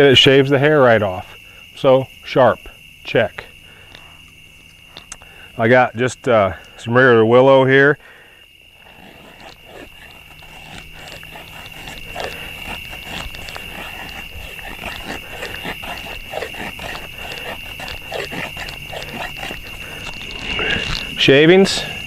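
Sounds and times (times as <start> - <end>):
crickets chirping: 0.0 - 22.0
knife scraping wood: 3.4 - 5.6, 8.6 - 22.0.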